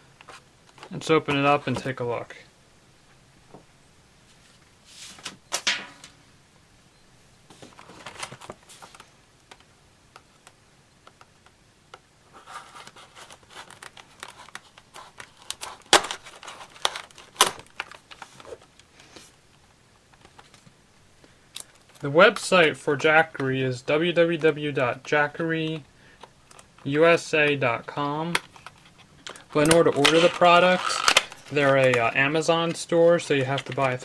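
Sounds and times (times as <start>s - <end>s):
plastic and cardboard crinkling: 7.5s - 10.5s, 12.3s - 23.6s, 26.2s - 34.0s.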